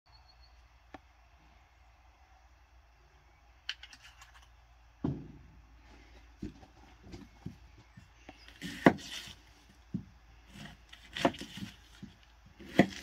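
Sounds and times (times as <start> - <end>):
dull knock: 5.0 - 5.5.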